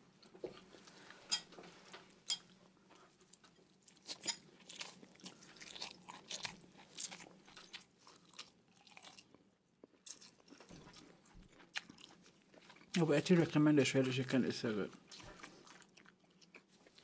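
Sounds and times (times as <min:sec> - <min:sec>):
person chewing crunchy food: 0:03.3 - 0:13.0, 0:14.9 - 0:17.0.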